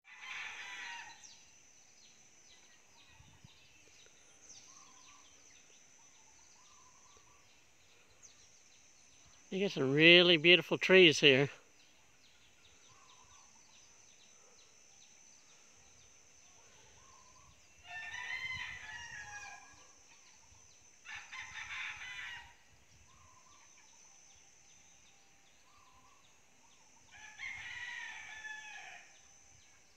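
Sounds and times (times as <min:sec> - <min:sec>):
roosters crowing: 0:00.0 - 0:01.4, 0:17.8 - 0:20.1, 0:21.0 - 0:22.7, 0:27.1 - 0:29.4
high insect drone: 0:00.1 - 0:29.9.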